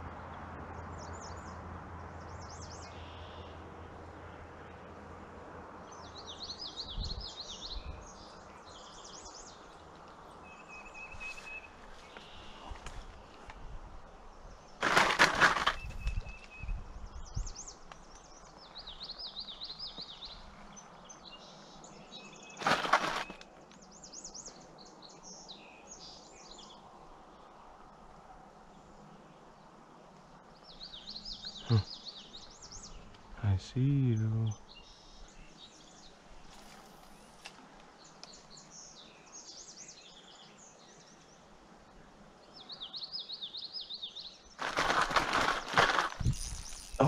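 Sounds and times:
songbirds warbling: 0:14.1 - 0:28.0, 0:28.7 - 0:47.0.

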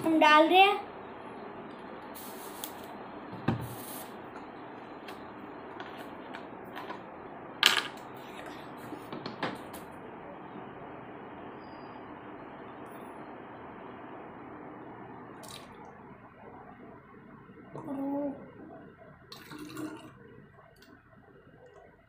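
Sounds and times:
steady hiss: 0:01.9 - 0:06.2.

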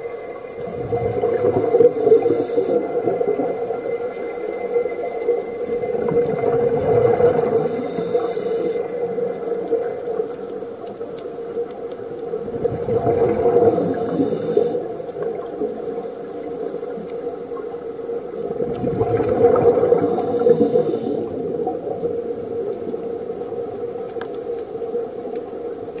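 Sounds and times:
steady hum: 0:00.0 - 0:10.8
exhaled bubbles rumbling: 0:00.0 - 0:26.0
regulator inhale hiss: 0:01.4 - 0:03.2, 0:07.4 - 0:09.1, 0:13.4 - 0:15.1, 0:19.9 - 0:21.4.

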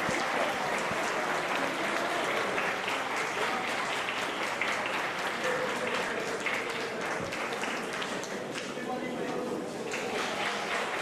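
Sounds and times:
crowd applauding: 0:00.0 - 0:09.0, 0:09.7 - 0:11.0.

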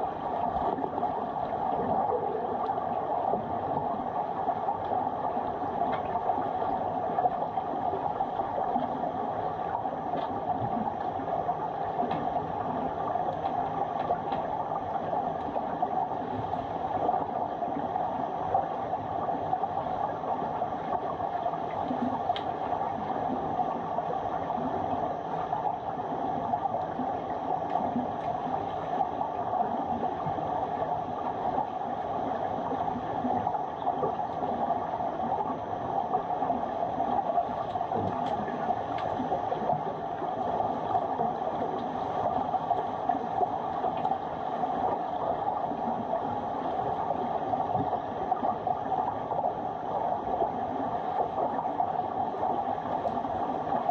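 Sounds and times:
muffled underwater hiss: 0:00.0 - 0:53.9
faint clicks: 0:21.6 - 0:22.6.

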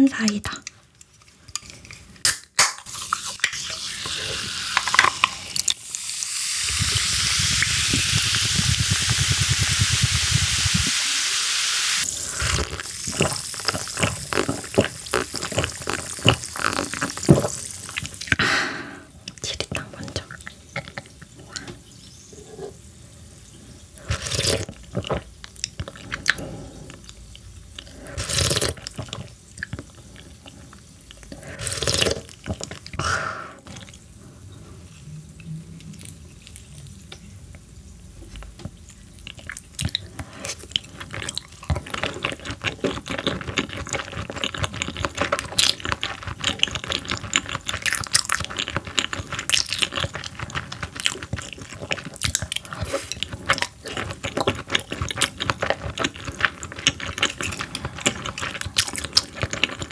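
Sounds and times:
slurping soup from spoon: 0:02.9 - 0:05.8, 0:12.0 - 0:18.4, 0:24.0 - 0:27.2, 0:27.8 - 0:34.0, 0:48.4 - 0:59.9
chewing with wet smacks: 0:12.5 - 0:18.4, 0:24.4 - 0:33.0, 0:38.3 - 0:59.9.

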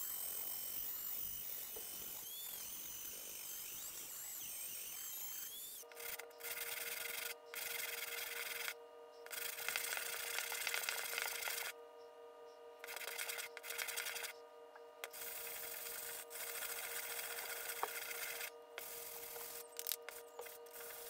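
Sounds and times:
rotary tool grinding metal: 0:00.0 - 0:11.7, 0:12.8 - 0:14.4, 0:15.0 - 0:21.0
metal scraping on sandpaper: 0:05.9 - 0:11.7, 0:12.8 - 0:14.4, 0:15.1 - 0:21.0.

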